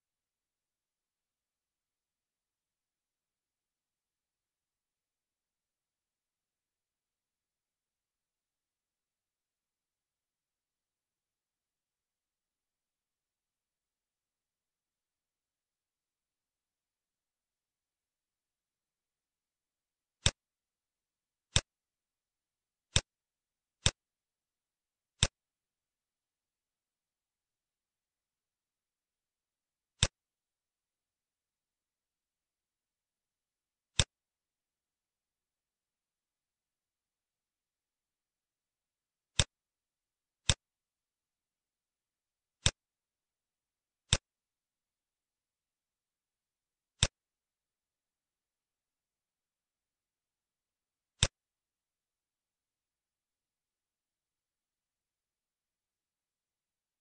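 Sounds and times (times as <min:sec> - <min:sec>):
computer mouse clicks: 0:25.2 - 0:25.4, 0:30.0 - 0:30.2, 0:40.4 - 0:40.6, 0:42.6 - 0:42.8.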